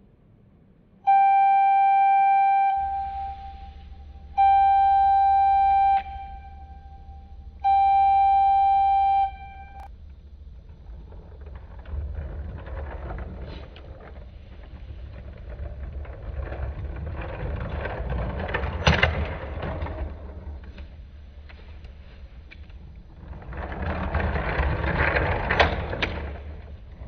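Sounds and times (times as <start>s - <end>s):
horn-like tone: 1.0s - 9.9s.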